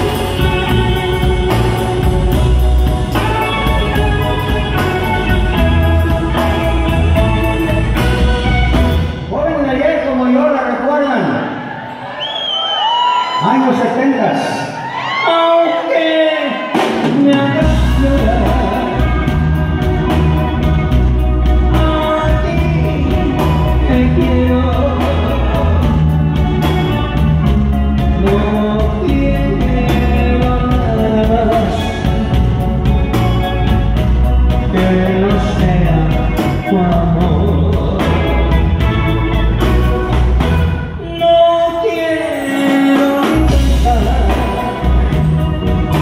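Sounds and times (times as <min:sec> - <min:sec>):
live band playing: 0:00.0 - 0:46.0
man singing into microphone: 0:15.2 - 0:19.5, 0:21.6 - 0:27.2, 0:28.0 - 0:32.9, 0:34.6 - 0:38.8, 0:41.0 - 0:46.0.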